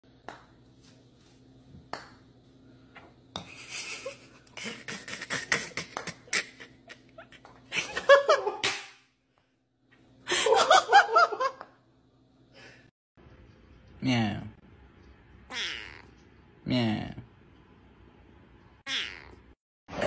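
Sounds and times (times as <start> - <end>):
person laughing: 3.5 - 8.7.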